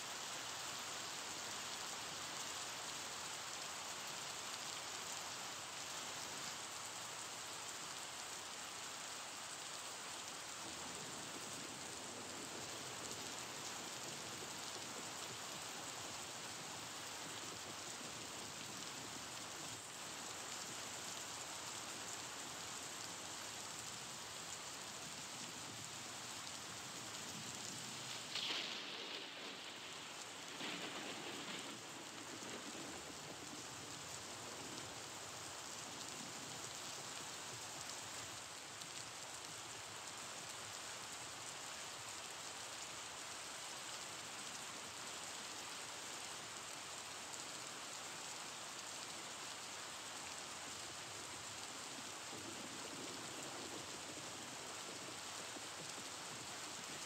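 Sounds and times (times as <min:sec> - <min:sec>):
steady hiss: 0:00.0 - 0:57.0
brief louder rustles: 0:28.2 - 0:31.9.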